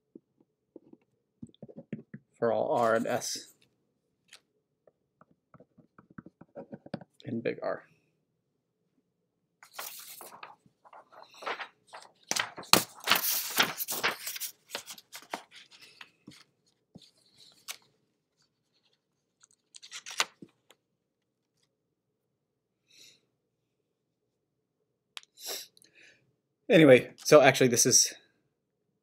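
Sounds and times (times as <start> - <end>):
paper rustling and crinkling: 2.7 - 3.3, 9.6 - 20.6.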